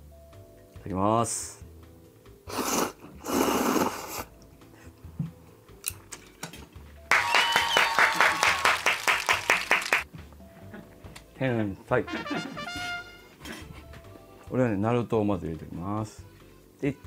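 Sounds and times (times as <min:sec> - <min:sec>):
noodles being slurped: 0:02.5 - 0:04.3
hands clapping rapidly: 0:07.1 - 0:10.1.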